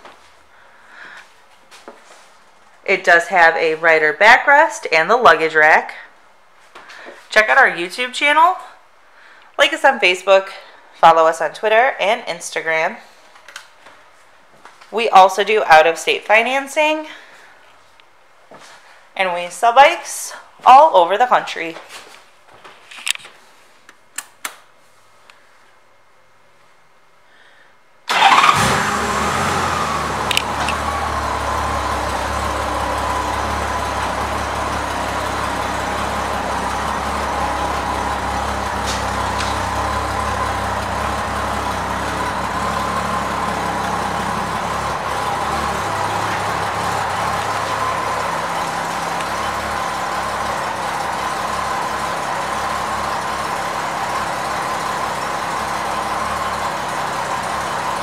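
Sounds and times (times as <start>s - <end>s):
motorcycle engine idling: 28.1s - 58.0s.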